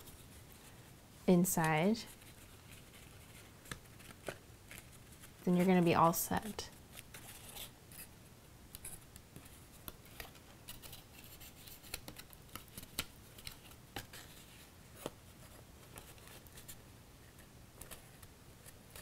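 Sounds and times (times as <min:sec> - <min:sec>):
paper rustling: 0:02.1 - 0:05.4.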